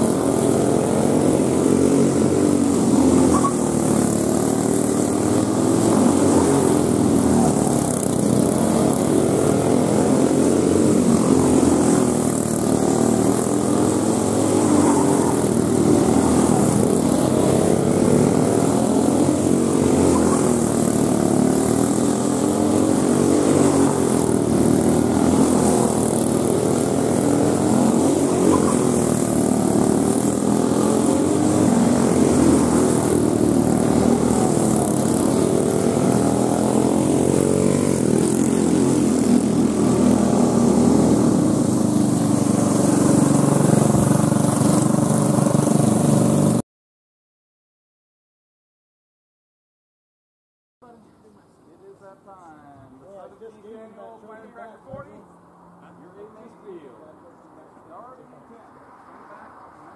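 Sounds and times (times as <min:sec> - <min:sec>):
go-kart engines racing: 0:00.0 - 0:46.6, 0:51.9 - 0:59.9.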